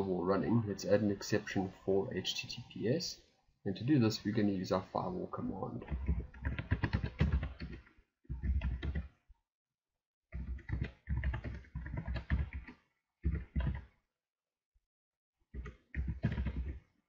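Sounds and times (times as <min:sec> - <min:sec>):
typing on computer keyboard: 0:05.8 - 0:09.1, 0:10.3 - 0:13.9, 0:15.6 - 0:16.8.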